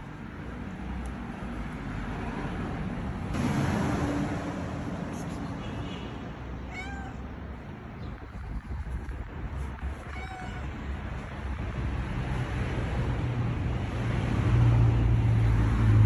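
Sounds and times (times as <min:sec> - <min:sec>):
road traffic rumble: 0:00.0 - 0:16.0
vehicle passing: 0:00.2 - 0:05.6, 0:10.5 - 0:16.0
cat meowing: 0:06.6 - 0:07.3, 0:09.8 - 0:10.9.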